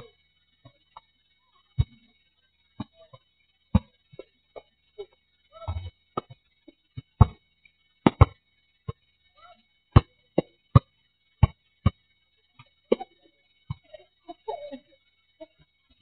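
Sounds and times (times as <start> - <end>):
basketball bouncing on asphalt: 3.8 - 4.2, 7.0 - 7.4, 8.1 - 9.0, 10.7 - 12.0.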